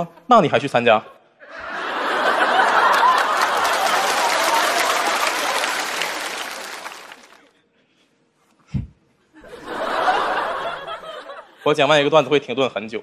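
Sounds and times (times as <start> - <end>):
studio audience laughing: 1.4 - 7.4, 9.4 - 12.3
audience applauding: 1.9 - 7.5.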